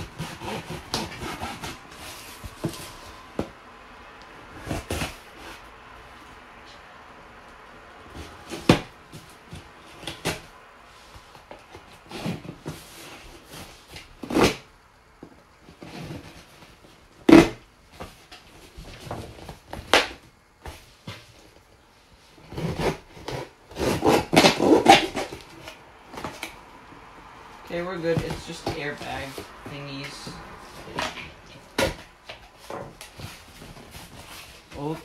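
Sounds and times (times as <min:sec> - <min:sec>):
knife slicing packing tape: 0:00.0 - 0:01.9, 0:22.5 - 0:25.8.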